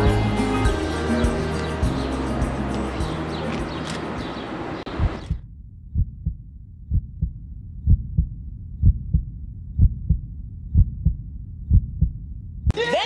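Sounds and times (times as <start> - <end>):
music: 0.0 - 4.0
heartbeat double thump: 4.9 - 12.7.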